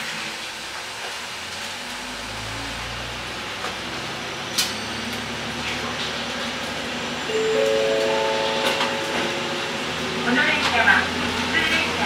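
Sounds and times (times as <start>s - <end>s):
rail noise: 4.5s - 12.0s.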